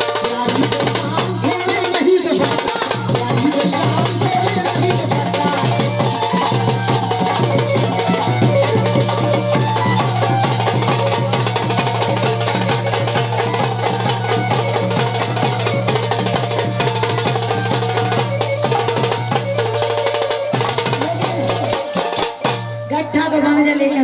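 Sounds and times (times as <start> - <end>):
fast drum rhythm: 0.0 - 23.0
harmonium holding notes: 0.0 - 24.0.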